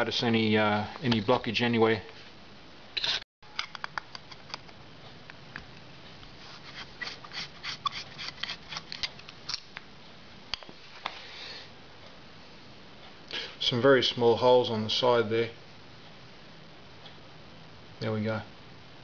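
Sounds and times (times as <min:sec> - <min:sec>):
screwdriver metal clicks and scrapes: 0:06.7 - 0:09.7.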